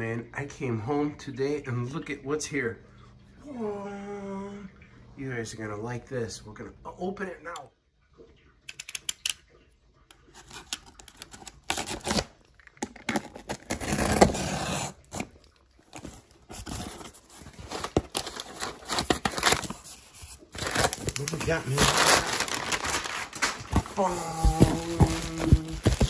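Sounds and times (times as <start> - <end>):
cardboard flaps rustling: 13.1 - 26.0.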